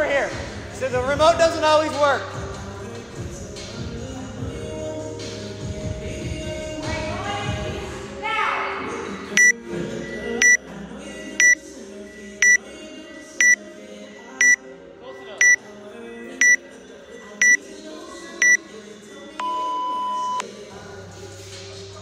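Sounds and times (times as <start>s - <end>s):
long low timer beep: 9.4s - 10.6s, 19.4s - 20.4s.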